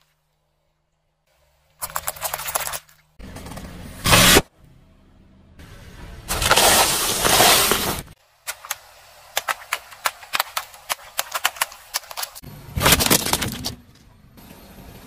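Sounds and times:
tyre crushing bread in foil trays: 0:09.7 - 0:13.8.

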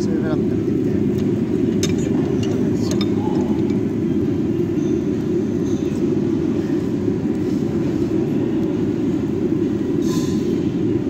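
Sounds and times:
ventilation fan rumble: 0:00.0 - 0:11.0.

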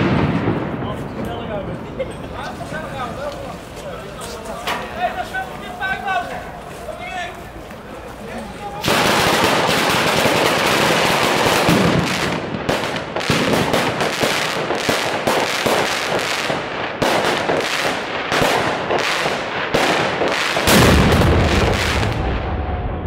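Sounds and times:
heavy firework boom: 0:00.0 - 0:02.1, 0:19.9 - 0:23.0
fireworks bangs and crackles: 0:00.0 - 0:23.0.

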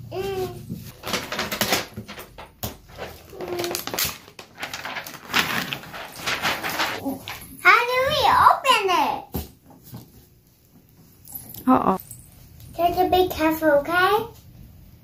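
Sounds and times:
paper tearing and rustling: 0:02.9 - 0:07.4.

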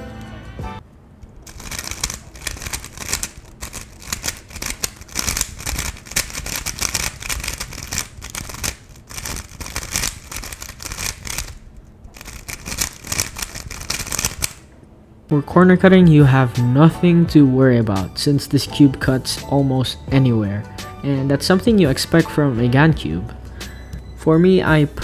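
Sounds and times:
puzzle cube plastic clicks: 0:01.2 - 0:14.7.

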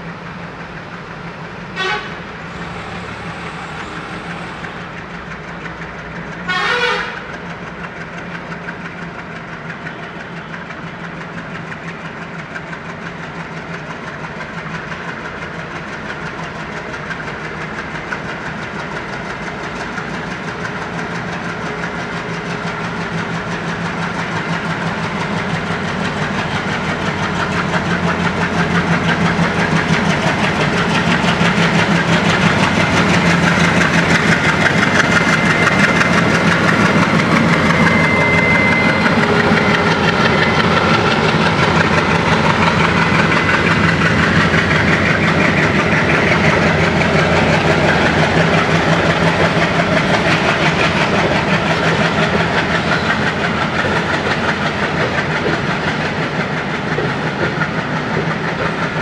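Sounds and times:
diesel locomotive chugging past: 0:00.0 - 0:59.0.

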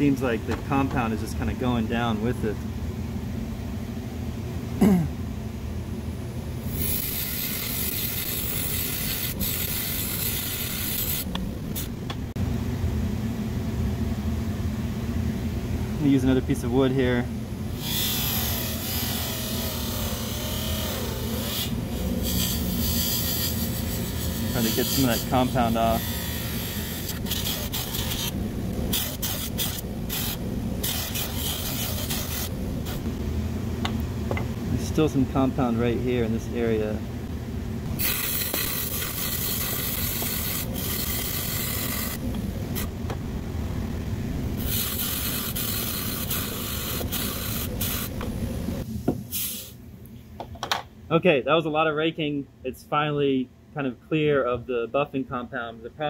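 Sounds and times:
buffer motor humming: 0:06.6 - 0:48.9.

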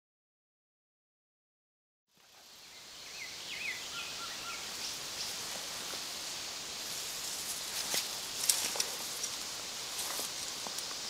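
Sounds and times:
bird chirping: 0:02.6 - 0:05.4.

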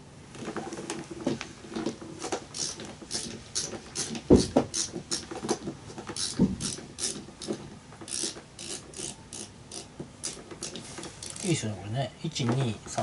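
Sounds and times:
screw creaking into plastic: 0:01.8 - 0:11.5.

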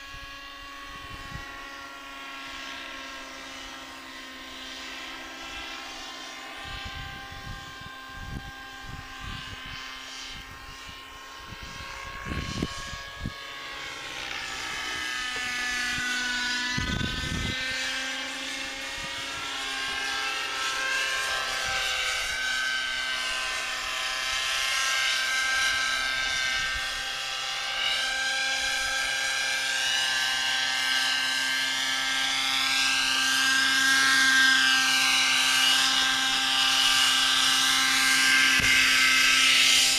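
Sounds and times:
wind rumbling on microphone: 0:00.0 - 0:01.7, 0:06.6 - 0:13.6, 0:14.2 - 0:20.0, 0:25.6 - 0:27.0
model helicopter engine whine: 0:00.0 - 0:39.9.

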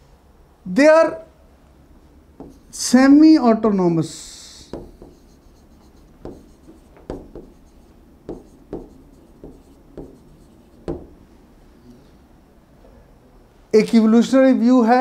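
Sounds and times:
stylus tapping and scraping screen: 0:02.4 - 0:02.8, 0:04.7 - 0:11.2.

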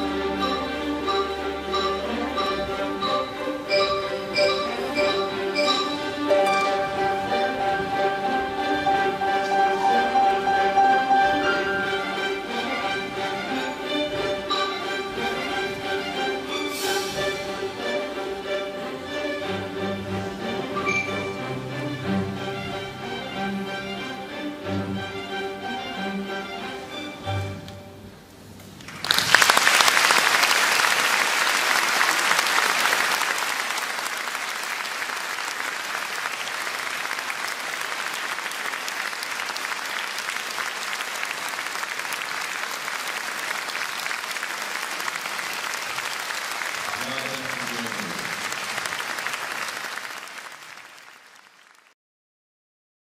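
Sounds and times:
audience applauding: 0:28.8 - 0:52.0.

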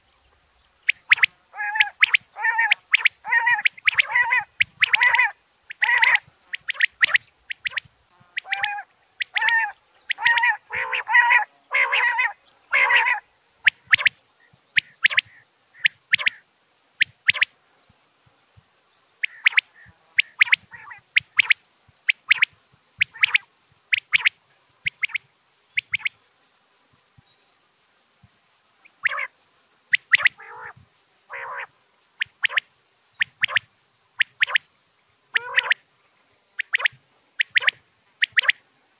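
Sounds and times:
quail calling: 0:00.9 - 0:14.2, 0:14.8 - 0:16.4, 0:19.2 - 0:25.2, 0:25.8 - 0:26.2, 0:29.0 - 0:29.3, 0:29.9 - 0:34.6, 0:35.3 - 0:35.8, 0:36.6 - 0:38.6
low rasping bird call: 0:01.1 - 0:06.8, 0:08.4 - 0:13.2, 0:30.2 - 0:31.7, 0:35.3 - 0:35.8.

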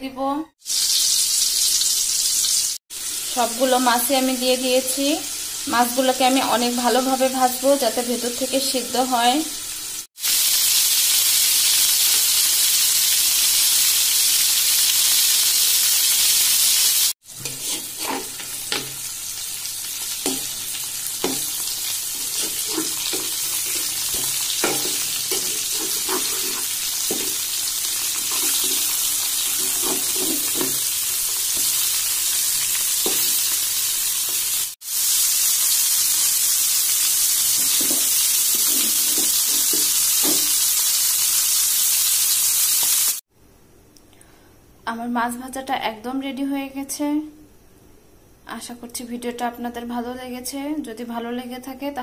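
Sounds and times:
fish sizzling in hot oil: 0:00.6 - 0:43.2
metal spatula scraping pan: 0:17.3 - 0:19.1, 0:20.2 - 0:31.9, 0:32.7 - 0:33.5, 0:37.5 - 0:40.7.

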